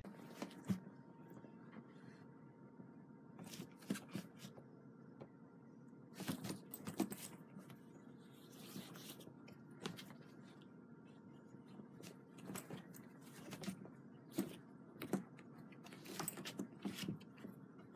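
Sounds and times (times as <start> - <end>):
low room hum: 0.0 - 17.9
cats scratching fabric carrier: 11.9 - 17.6.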